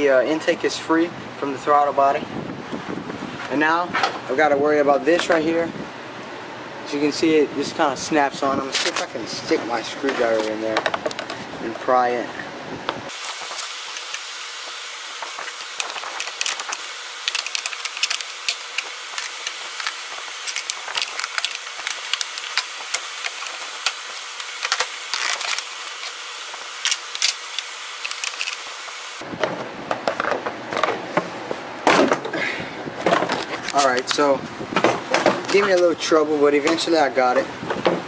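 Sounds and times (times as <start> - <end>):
steady hiss: 13.1 - 29.2
hard plastic clicks and scrapes: 15.6 - 26.1.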